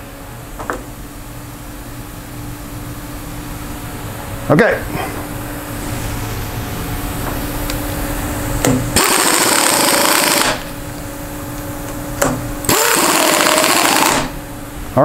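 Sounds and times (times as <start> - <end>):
steady shop hum: 0.0 - 15.0
pneumatic impact wrench hammering: 8.6 - 10.7, 12.2 - 14.4.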